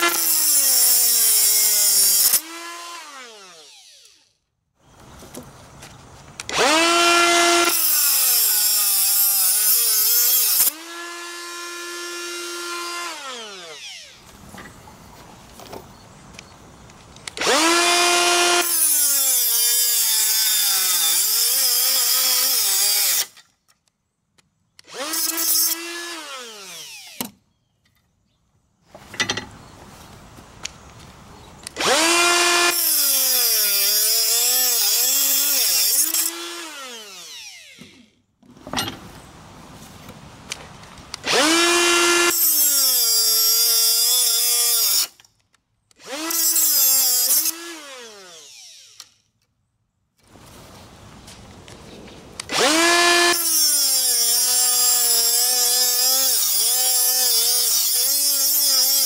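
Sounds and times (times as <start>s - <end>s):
die grinder whining: 0.0s - 4.3s, 6.5s - 14.3s, 31.7s - 38.1s, 46.0s - 49.2s.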